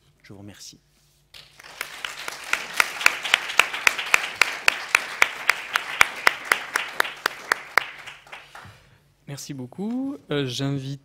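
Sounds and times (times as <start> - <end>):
audience applauding: 1.4 - 8.8
nearby hands clapping loudly: 1.4 - 8.8.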